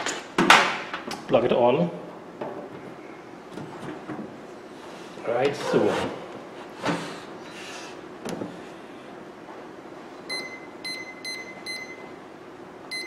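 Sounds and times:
microwave keypad beeps: 10.3s - 12.1s.

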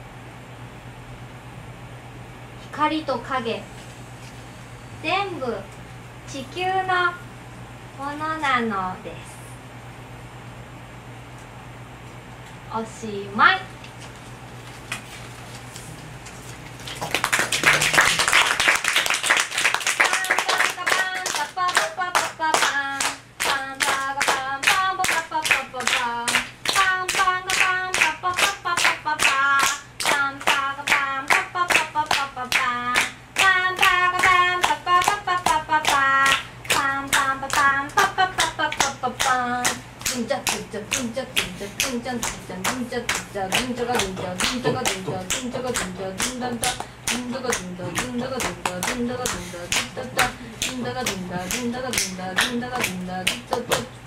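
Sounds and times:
rhythmic clapping: 16.7s - 54.0s
audience applause: 16.8s - 21.4s
voices singing: 20.1s - 54.0s.

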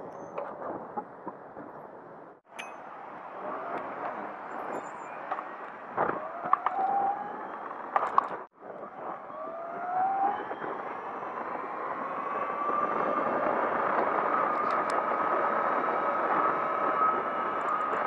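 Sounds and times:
wind noise on microphone: 0.0s - 18.0s
electric dirt bike motor whining: 8.8s - 18.0s.

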